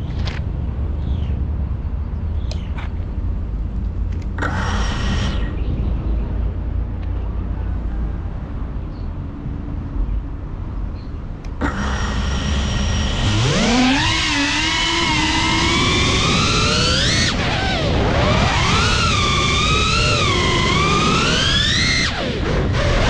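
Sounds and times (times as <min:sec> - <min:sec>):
wind rumble on microphone: 0:00.0 - 0:23.0
drone motors whining: 0:04.0 - 0:07.3, 0:11.4 - 0:23.0
propellers hissing: 0:04.4 - 0:05.8, 0:11.5 - 0:23.0.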